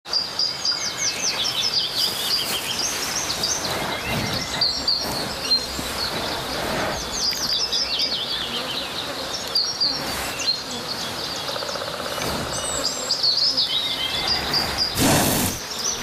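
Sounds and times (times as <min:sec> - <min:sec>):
songbird chirping: 0:00.1 - 0:16.0
outdoor hiss: 0:00.2 - 0:16.0
rough breathy sound: 0:14.0 - 0:15.6.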